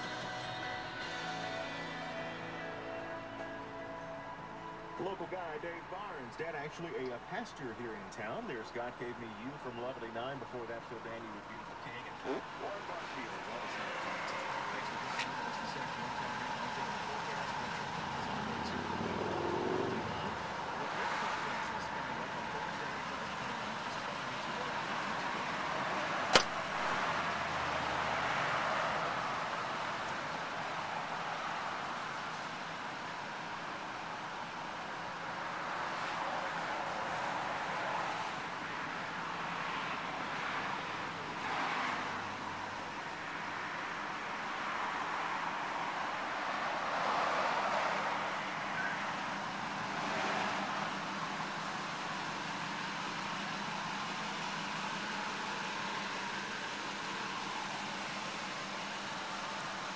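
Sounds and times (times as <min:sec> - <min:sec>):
road traffic noise: 0:00.0 - 0:59.9
steady background noise: 0:00.0 - 0:59.9
vehicle passing by: 0:11.8 - 0:32.0, 0:35.4 - 0:53.9
car door slamming: 0:26.3 - 0:27.0.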